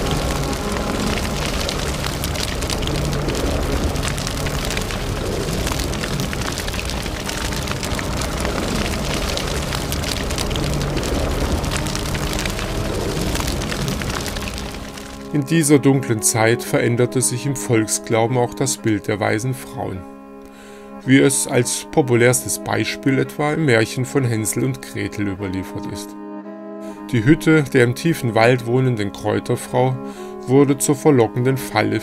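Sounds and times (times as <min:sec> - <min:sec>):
fire crackling: 0:00.0 - 0:16.4
faint droning background music: 0:00.0 - 0:32.0.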